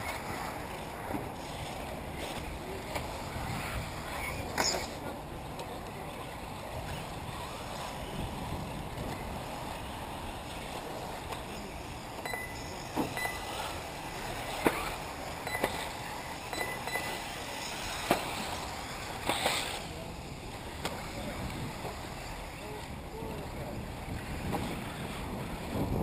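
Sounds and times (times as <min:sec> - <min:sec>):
high motor whines: 0:10.0 - 0:25.8.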